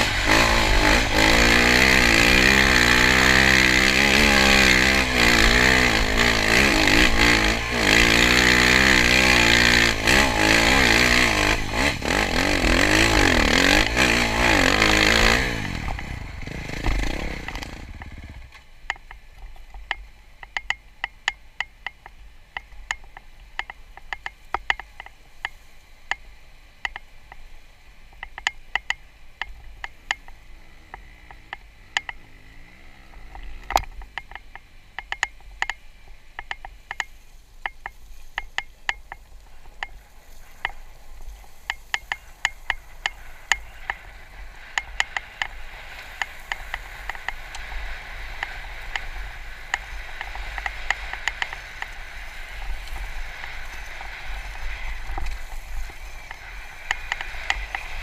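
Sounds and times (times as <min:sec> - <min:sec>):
dirt bike engine rumble: 0:00.0 - 0:58.0
rushing hiss: 0:40.0 - 0:58.0.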